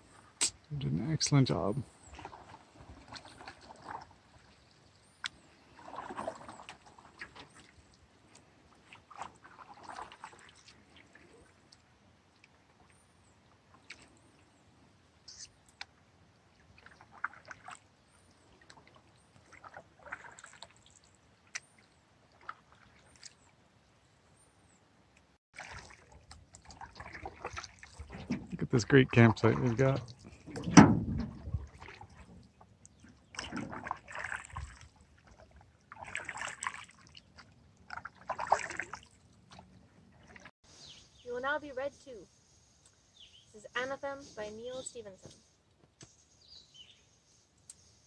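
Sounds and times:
paddle splashing in water: 0:02.1 - 0:11.7, 0:16.6 - 0:23.5, 0:25.6 - 0:40.5.

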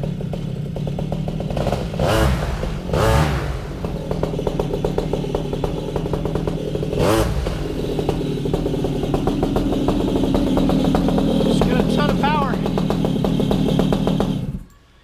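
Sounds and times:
two-stroke engine idling: 0:00.0 - 0:14.8
engine throttle blip: 0:01.4 - 0:14.9.

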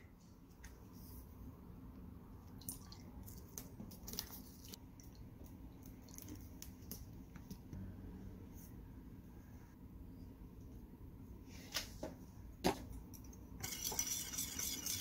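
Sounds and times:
small wet drips: 0:02.4 - 0:07.5.

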